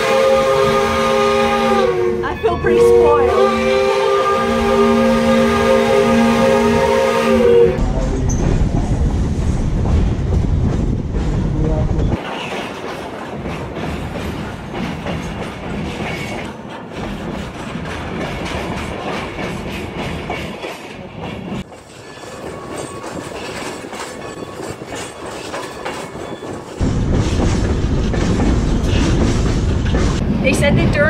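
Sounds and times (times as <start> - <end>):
wind rumble on microphone: 7.8 - 12.2
train wheels clickety-clack: 7.8 - 31.0.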